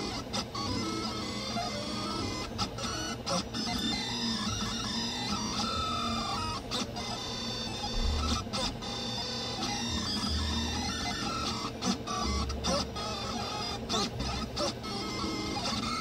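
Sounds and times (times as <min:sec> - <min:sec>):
cooling fan hum: 0:00.0 - 0:16.0
stepper motors whining: 0:00.0 - 0:16.0.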